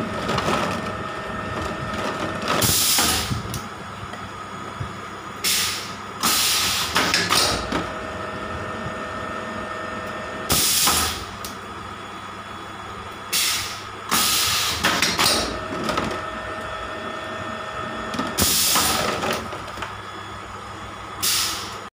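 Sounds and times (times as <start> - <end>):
machine humming: 0.0 - 21.9
compressed air hissing bursts: 5.4 - 7.0, 13.3 - 14.9, 21.2 - 21.7.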